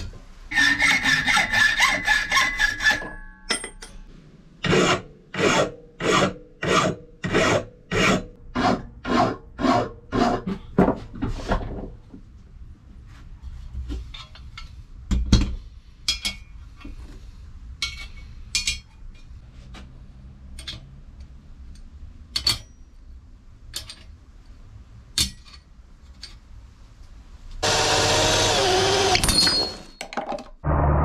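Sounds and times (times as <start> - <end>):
power tool running: 27.6 - 29.8.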